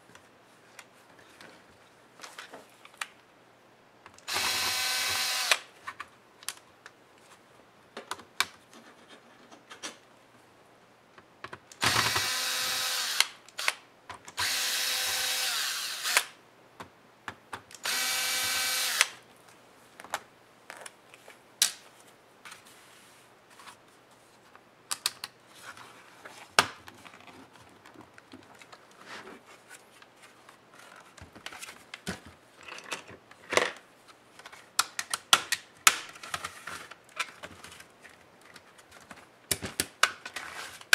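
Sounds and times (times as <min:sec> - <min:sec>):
electric screwdriver motor: 0:04.3 - 0:05.6, 0:11.8 - 0:13.8, 0:14.4 - 0:16.3, 0:17.8 - 0:19.2
clicks of screws and plastic parts: 0:24.9 - 0:25.4, 0:34.4 - 0:40.4.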